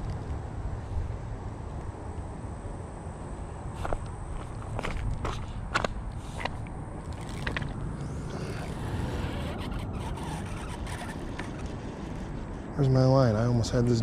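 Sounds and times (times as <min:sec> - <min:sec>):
fishing reel clicks and scrapes: 0:07.1 - 0:12.4.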